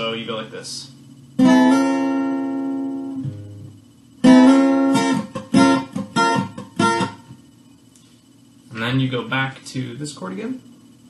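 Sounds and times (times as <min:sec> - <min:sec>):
acoustic guitar chords strummed: 0:01.4 - 0:07.4.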